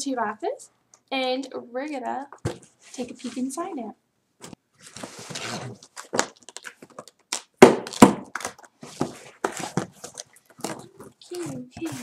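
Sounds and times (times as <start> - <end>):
cardboard scraping and crinkling: 4.8 - 6.3, 8.8 - 12.0.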